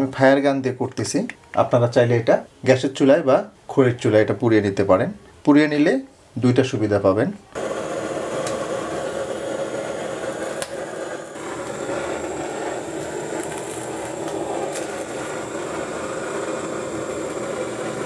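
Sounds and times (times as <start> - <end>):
torch flame hissing: 7.6 - 18.0.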